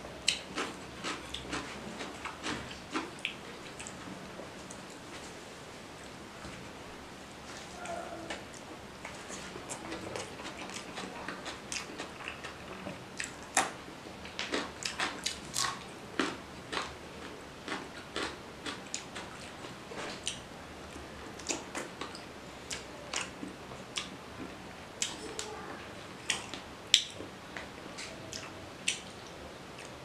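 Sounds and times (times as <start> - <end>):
person chewing food: 0.2 - 5.3, 7.6 - 20.4, 21.4 - 25.6
smacking mouth sounds: 26.3 - 30.0.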